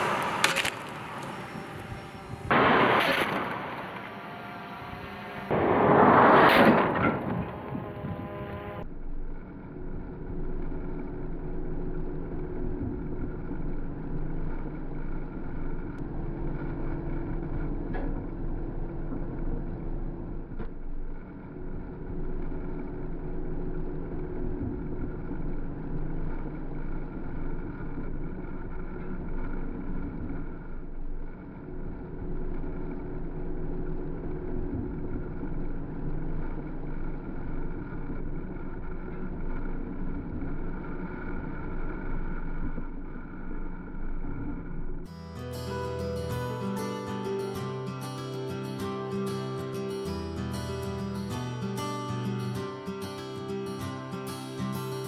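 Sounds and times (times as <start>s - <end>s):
vehicles rushing past: 0.0s - 8.8s
engine and wind drone: 0.0s - 55.0s
low hum: 0.0s - 55.0s.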